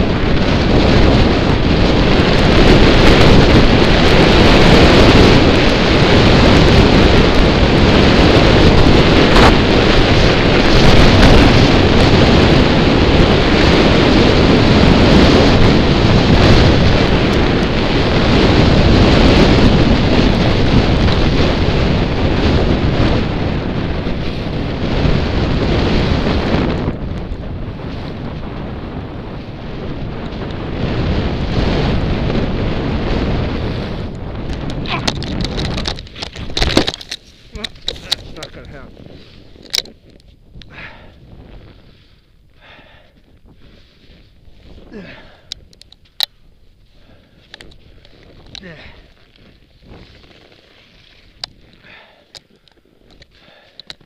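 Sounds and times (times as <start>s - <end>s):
skis sliding on snow: 0.0s - 26.6s, 27.6s - 34.8s, 35.4s - 40.1s, 40.7s - 53.8s
wind rushing over microphone: 0.0s - 54.0s.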